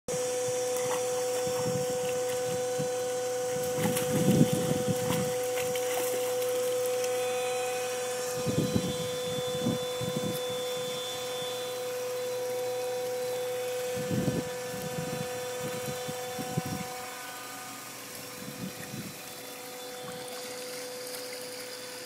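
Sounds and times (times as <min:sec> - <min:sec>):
steady hum: 0:00.1 - 0:22.0
dog splashing in water: 0:03.5 - 0:07.1.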